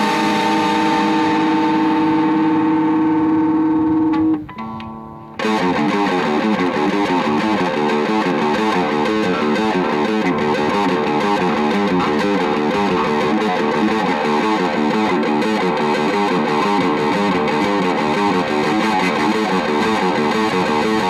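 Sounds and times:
metalcore distorted guitars: 0.0 - 21.0.

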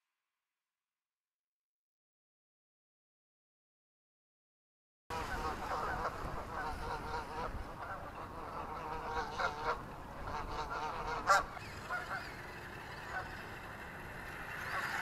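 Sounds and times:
geese honking: 5.1 - 15.0.

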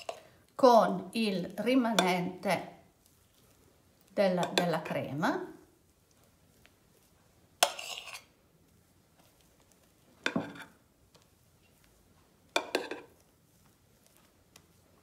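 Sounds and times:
spoon scraping ceramic dishes: 7.6 - 8.3, 10.3 - 10.8, 12.6 - 13.1.

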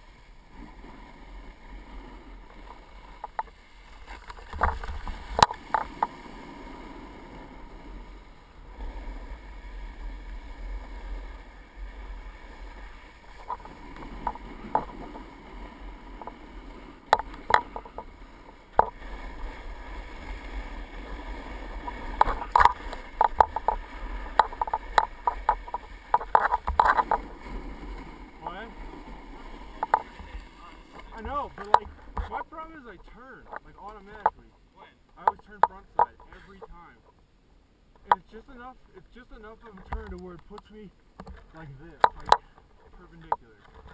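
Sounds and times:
snowboard scraping on snow: 0.0 - 34.2
sharp clicks and knocks: 3.2 - 3.5, 4.3 - 6.1, 13.4 - 15.2, 17.1 - 18.1, 18.8 - 19.0, 21.9 - 27.2, 29.8 - 30.1, 31.0 - 32.4, 35.1 - 36.7, 38.0 - 38.3, 39.8 - 42.6.

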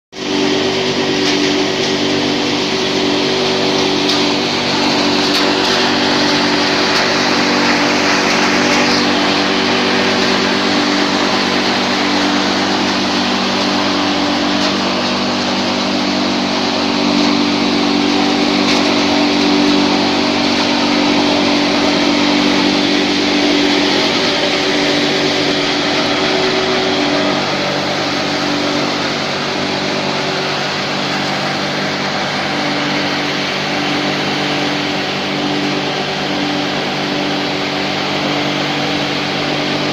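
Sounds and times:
hammer mill crushing wood chips: 0.2 - 39.9.

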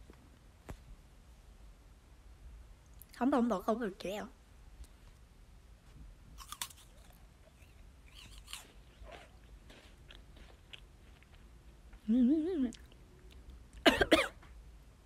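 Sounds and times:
meringue cookie crunching: 6.4 - 12.1.

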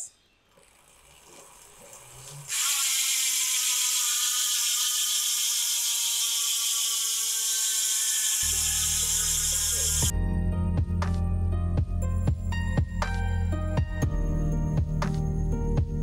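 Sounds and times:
bicycle freehub buzzing: 0.6 - 10.1.

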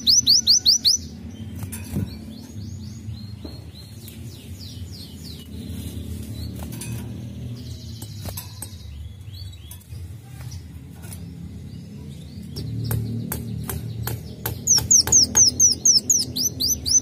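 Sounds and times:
buzzy bird trill: 0.0 - 3.3, 4.1 - 17.0
bird chirping song: 0.0 - 17.0
sharp bird clicks: 12.5 - 17.0.

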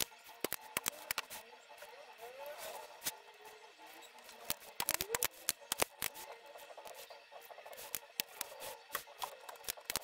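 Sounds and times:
sharp clicks and taps: 0.0 - 1.3, 4.4 - 6.2.

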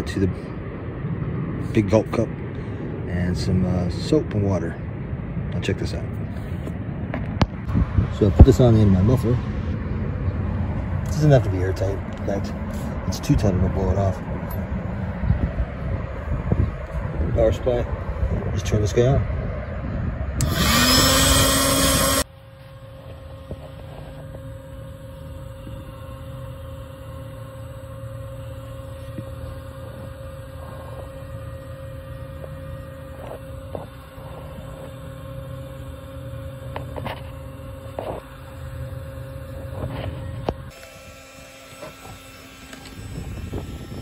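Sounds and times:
electric air pump whining: 20.4 - 44.0.

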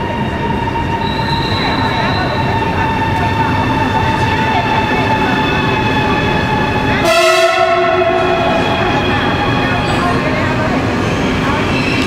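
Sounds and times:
train running noise: 0.0 - 12.0
train horn: 7.0 - 9.2.

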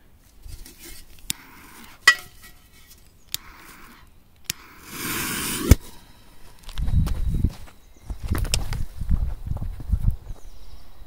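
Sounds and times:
fuse hissing: 3.2 - 6.4
lighter clicking: 4.4 - 5.8.

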